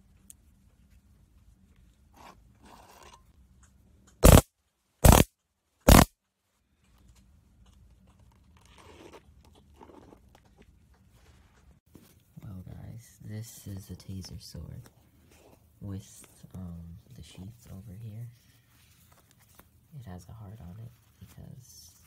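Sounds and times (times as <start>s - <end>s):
electric sparks crackling: 4.2s - 4.4s, 5.0s - 5.3s, 5.9s - 6.1s
rustling of handling: 6.5s - 22.0s.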